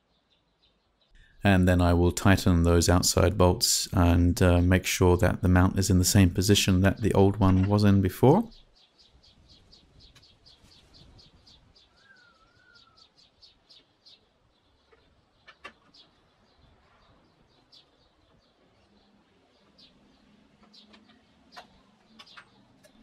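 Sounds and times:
bird whistling: 0:11.9 - 0:13.1.

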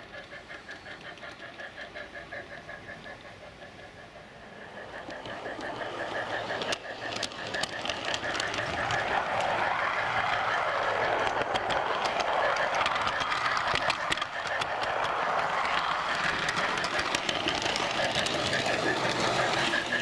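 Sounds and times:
model train mechanical whir: 0:00.0 - 0:20.0
wheels clicking over rail joints: 0:00.0 - 0:20.0.

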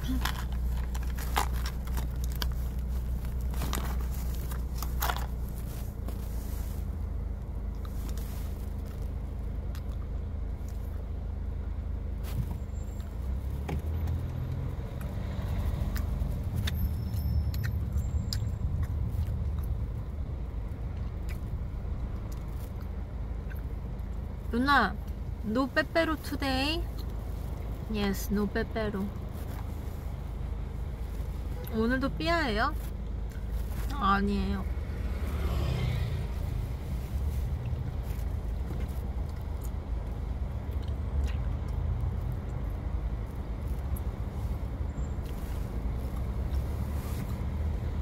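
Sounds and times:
rustling: 0:00.0 - 0:09.4
car engine rumble: 0:00.0 - 0:48.0
road noise: 0:00.0 - 0:48.0.

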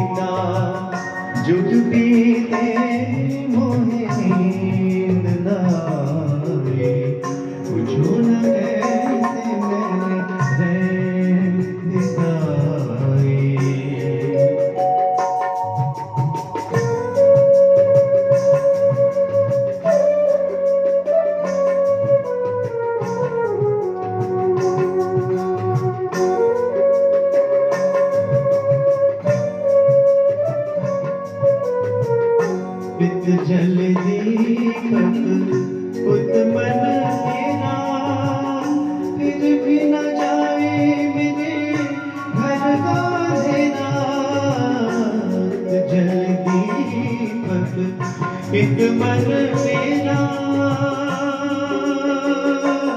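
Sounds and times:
man singing long notes: 0:00.0 - 0:15.8, 0:32.9 - 0:52.9
keyboard: 0:00.0 - 0:52.9
tabla and dholak drumming: 0:00.0 - 0:52.9.

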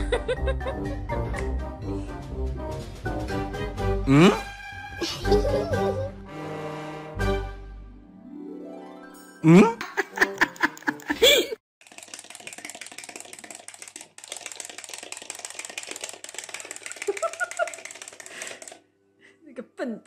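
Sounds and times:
cat toy clicking rattle: 0:11.8 - 0:18.8.

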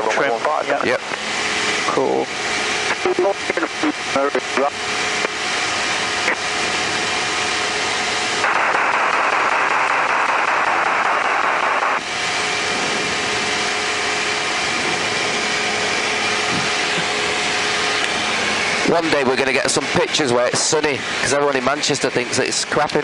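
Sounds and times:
light aircraft engine drone: 0:00.0 - 0:23.0.

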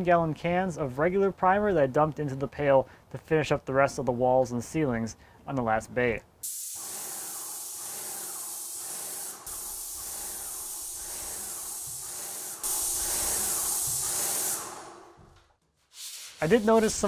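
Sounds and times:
paint sprayer hissing: 0:06.4 - 0:15.4, 0:16.0 - 0:17.0.

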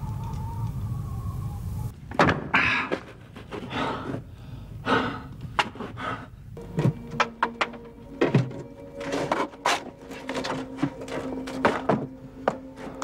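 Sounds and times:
man gasping and panting: 0:02.5 - 0:06.5
stones scraping and knocking: 0:06.7 - 0:13.0.

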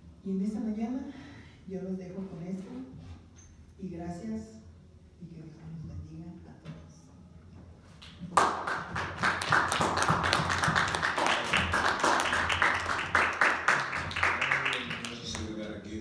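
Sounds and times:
congregation applauding: 0:08.2 - 0:15.7.

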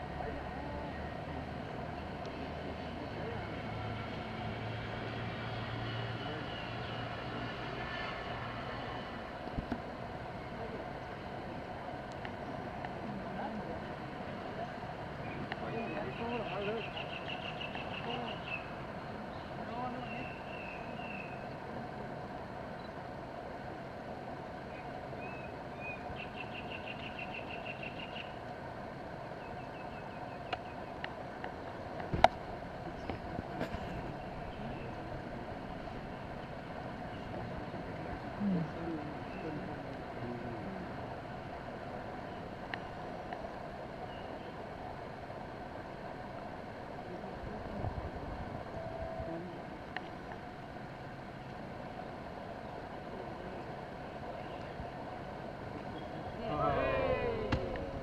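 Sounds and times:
outdoor background hum: 0:00.0 - 0:58.0
faint clicks: 0:42.7 - 0:43.5, 0:49.9 - 0:50.4.

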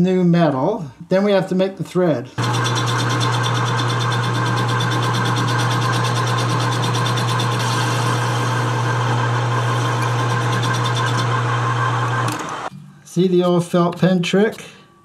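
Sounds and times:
metal lathe motor humming: 0:02.4 - 0:12.7.

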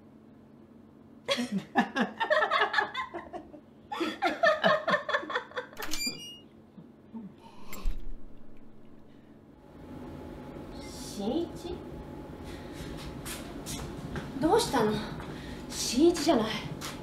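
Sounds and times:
woman laughing: 0:01.3 - 0:05.8.

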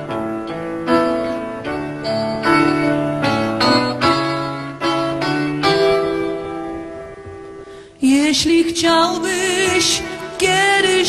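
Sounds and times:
piano keyboard chords: 0:00.0 - 0:07.8.

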